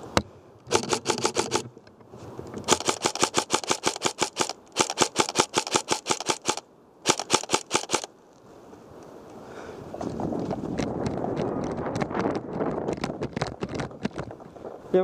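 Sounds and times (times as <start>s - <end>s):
airsoft gun firing full-auto: 0.7s - 1.6s, 2.7s - 8.1s.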